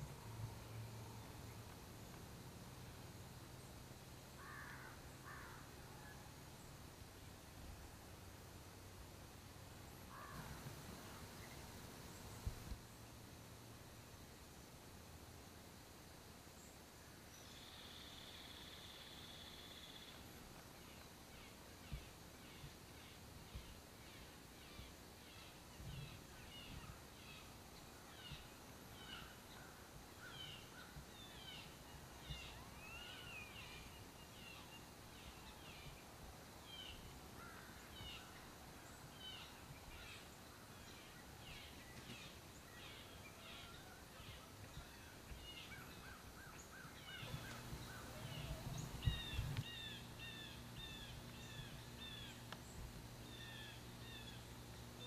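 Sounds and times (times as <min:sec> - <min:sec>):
background hiss: 0:00.0 - 0:55.0
faint high bird chirps: 0:30.2 - 0:36.0, 0:37.9 - 0:52.6.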